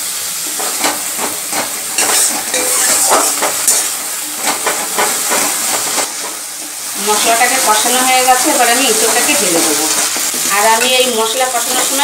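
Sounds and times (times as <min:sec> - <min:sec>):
paste sizzling in hot oil: 0:00.0 - 0:12.0
metal spatula scraping pan: 0:00.6 - 0:06.4.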